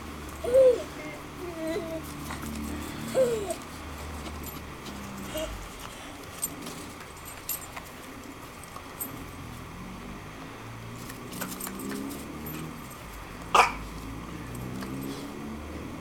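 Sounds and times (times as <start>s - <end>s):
dog collar tags jingling: 1.7s - 9.5s, 11.0s - 13.5s, 14.3s - 15.3s.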